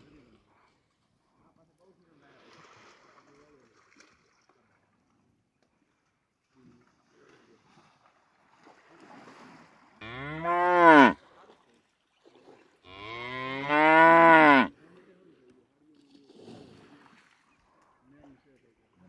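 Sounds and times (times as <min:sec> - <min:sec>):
water buffalo mooing: 0:10.0 - 0:11.2, 0:12.9 - 0:14.7.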